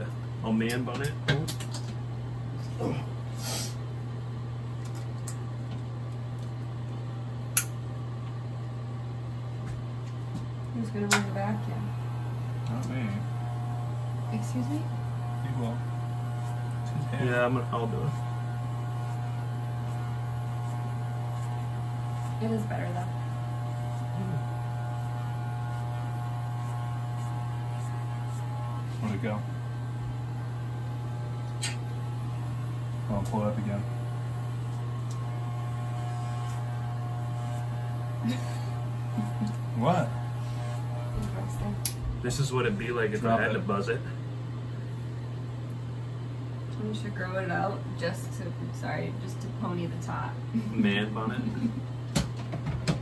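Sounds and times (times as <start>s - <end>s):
electric hair clipper buzzing: 11.0s - 43.8s, 50.5s - 53.0s.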